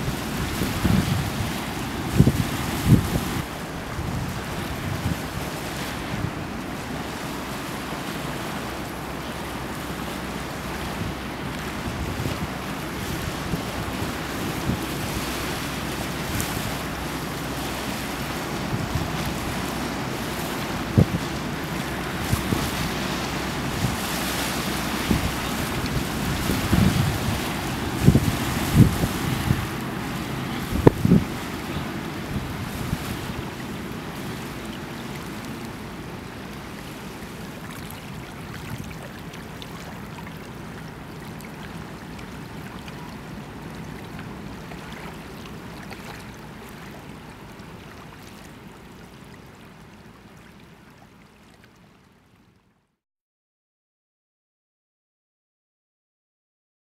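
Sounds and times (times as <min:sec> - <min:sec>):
wind buffeting microphone: 0:00.0 - 0:39.5
river water rushing: 0:00.0 - 0:51.6.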